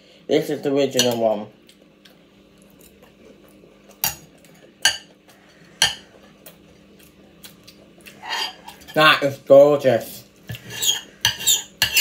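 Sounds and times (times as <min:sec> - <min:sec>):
cutlery clinking against dish: 0:10.6 - 0:12.0.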